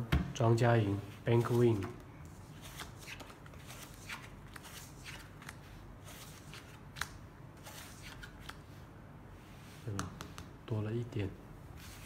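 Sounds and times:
playing cards sliding on felt: 0:11.8 - 0:12.0.

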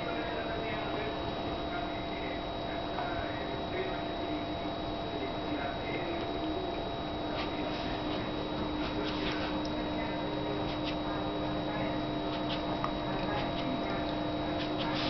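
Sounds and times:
steady electrical hum: 0:00.0 - 0:15.0
cat licking fur: 0:07.3 - 0:11.6, 0:12.2 - 0:15.0.

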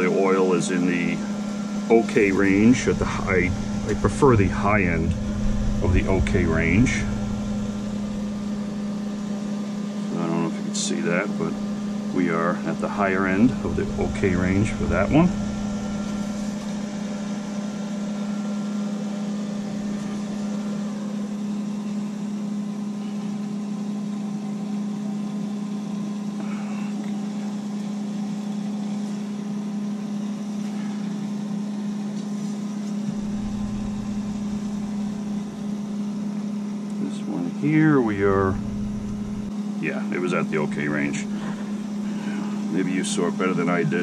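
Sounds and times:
air conditioning hum: 0:00.0 - 0:44.0
deep rumble: 0:02.2 - 0:09.5, 0:13.5 - 0:17.3, 0:33.1 - 0:36.2, 0:38.1 - 0:39.5.

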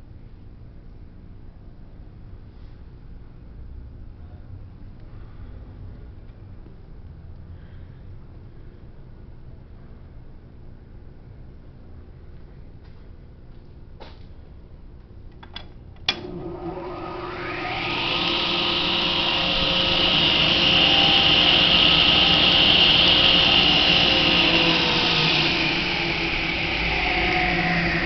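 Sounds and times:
table saw motor whine: 0:16.2 - 0:28.0.

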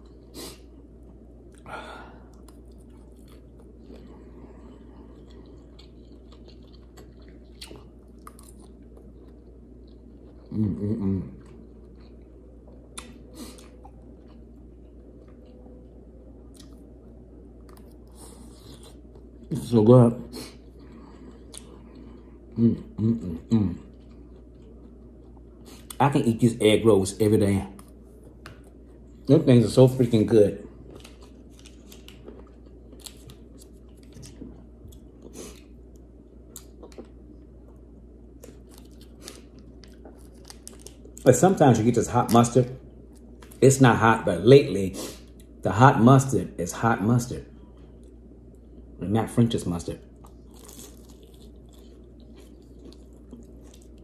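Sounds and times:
faint chewing: 0:00.0 - 0:16.8, 0:20.4 - 0:22.6, 0:50.2 - 0:54.0
steady low hum: 0:00.0 - 0:54.0.

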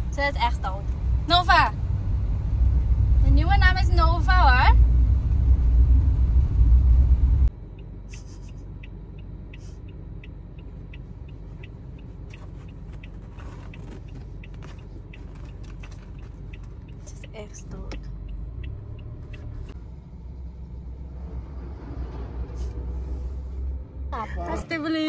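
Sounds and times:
car engine hum: 0:00.0 - 0:25.0
road rumble inside car: 0:00.0 - 0:25.0
turn signal ticking: 0:07.4 - 0:19.8.

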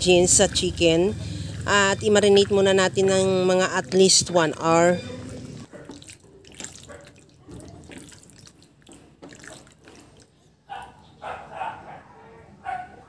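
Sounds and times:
hands squelching meat in marinade: 0:05.0 - 0:10.5.

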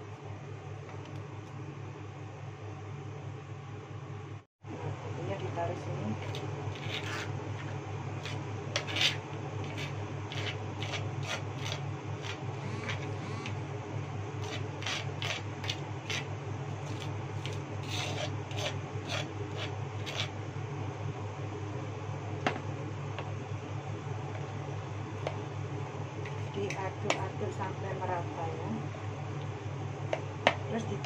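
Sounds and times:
steady low hum: 0:00.0 - 0:31.0
metal spoon scraping a dish: 0:06.2 - 0:13.5, 0:14.4 - 0:20.3.

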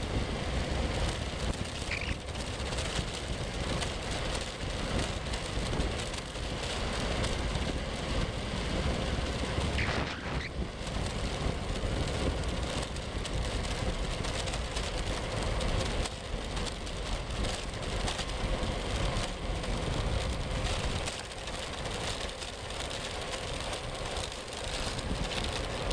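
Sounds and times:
wind on microphone: 0:00.0 - 0:16.0
wheels rolling on asphalt: 0:00.0 - 0:25.9
brief high squeal: 0:09.8 - 0:10.5.

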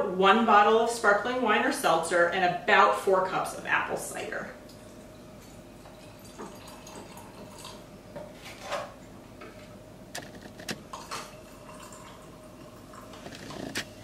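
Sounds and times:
cider pouring into a glass: 0:04.7 - 0:07.8, 0:10.9 - 0:13.6.

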